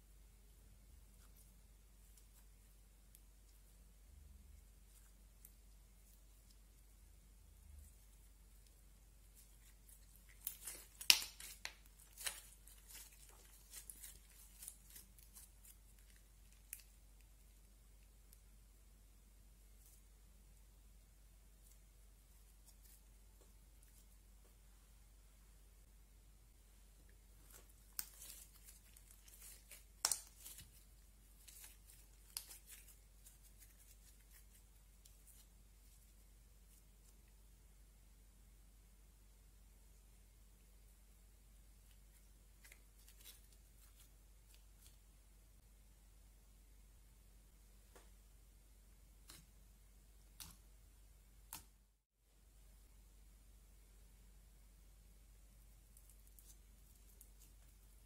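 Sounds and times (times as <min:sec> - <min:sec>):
sticky slime pops and crackles: 0:10.3 - 0:15.5, 0:27.6 - 0:30.8.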